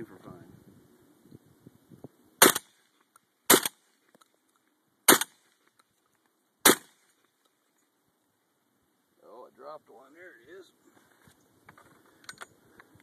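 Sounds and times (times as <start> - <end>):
shotgun blasts: 2.4 - 2.8, 3.5 - 3.9, 5.1 - 5.5, 6.6 - 7.1.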